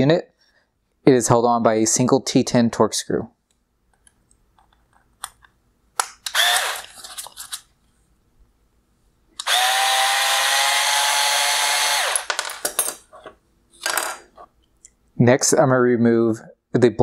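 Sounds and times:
electric screwdriver whine: 6.3s - 7.0s, 9.4s - 12.3s.

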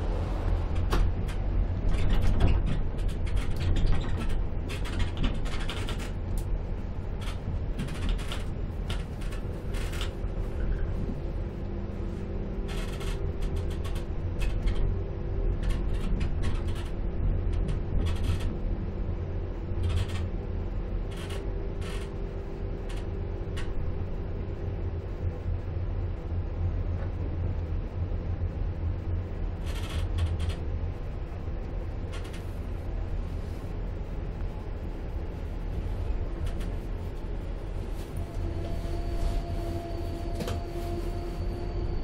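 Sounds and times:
faint steady hum: 0.0s - 42.0s
train rumble: 0.0s - 42.0s.

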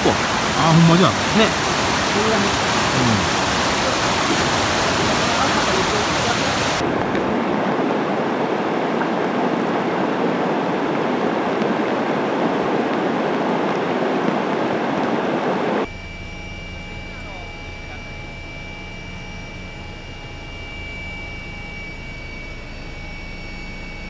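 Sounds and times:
floodwater rushing: 0.0s - 15.7s.

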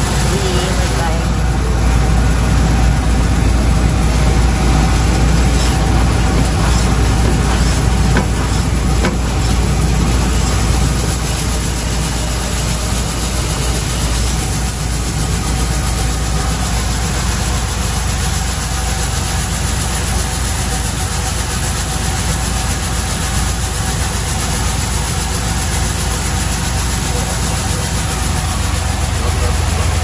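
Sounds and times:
machine motor hum: 0.0s - 18.3s, 24.8s - 30.0s.

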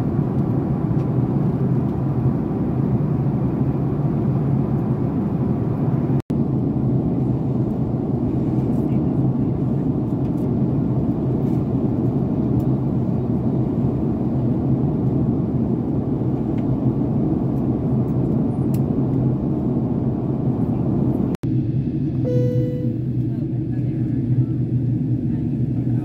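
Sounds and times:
airplane cabin airflow and engine noise: 0.0s - 26.0s
steady low hum: 19.5s - 26.0s.

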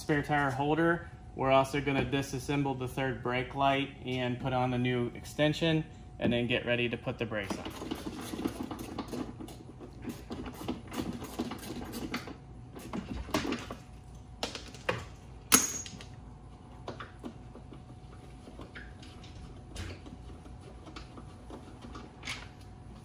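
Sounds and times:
sharp metal clank: 15.5s - 16.0s.

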